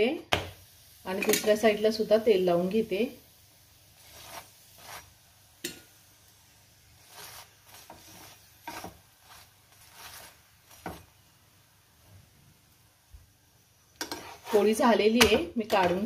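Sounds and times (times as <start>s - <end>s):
metal spatula scraping pan: 4.0s - 5.9s, 7.0s - 11.1s, 14.0s - 16.0s.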